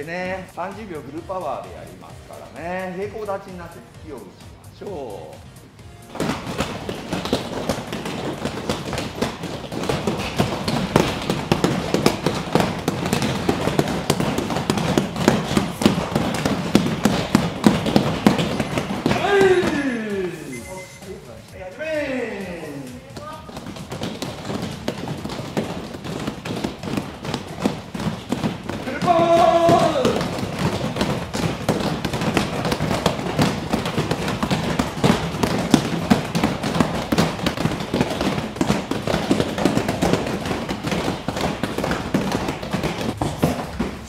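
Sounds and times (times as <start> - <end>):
fists punching foam pads: 5.2 - 20.5, 22.0 - 44.0
person shouting: 19.1 - 20.5, 28.8 - 30.3.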